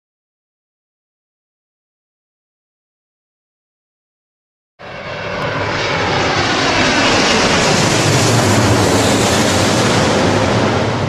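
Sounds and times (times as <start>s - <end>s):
jet aircraft roaring: 4.8s - 11.0s.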